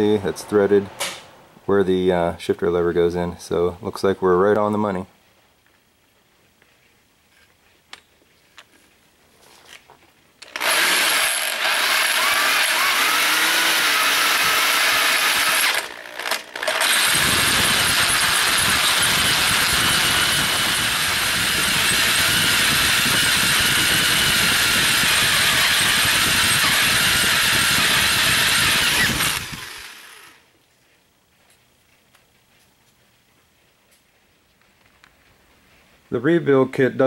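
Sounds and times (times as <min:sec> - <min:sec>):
hole saw grinding metal: 0:10.4 - 0:30.4
power drill whining: 0:10.4 - 0:30.4.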